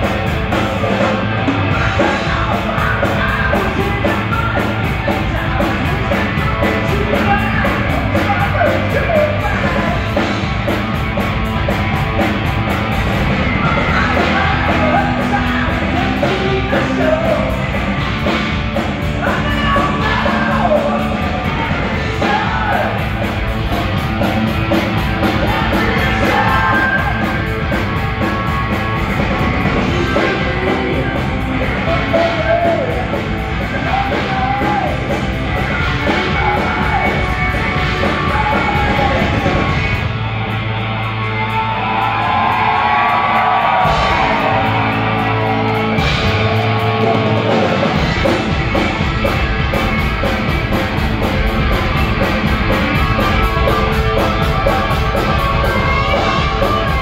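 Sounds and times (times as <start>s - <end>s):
guitar lead line: 0.0s - 57.0s
live heavy metal band: 0.0s - 57.0s
person singing: 0.8s - 10.4s, 13.4s - 23.4s, 24.8s - 28.7s, 29.4s - 39.8s, 52.2s - 57.0s.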